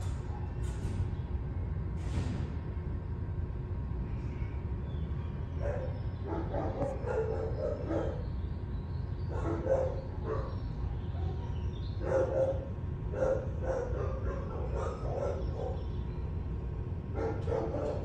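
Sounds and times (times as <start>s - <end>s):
dogs barking and yipping: 5.6s - 8.3s, 9.3s - 15.9s, 17.1s - 18.0s.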